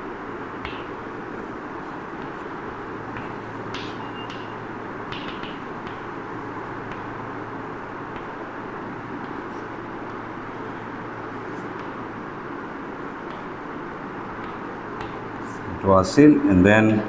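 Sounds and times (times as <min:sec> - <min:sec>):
chalk tapping on blackboard: 0:00.6 - 0:01.1, 0:01.8 - 0:10.8, 0:11.4 - 0:12.1, 0:12.9 - 0:15.7.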